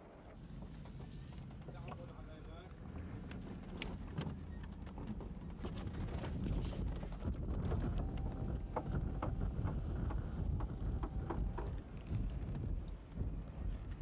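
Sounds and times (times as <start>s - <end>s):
vehicle rumble inside cabin: 0.3s - 14.0s
wind on microphone: 5.6s - 14.0s.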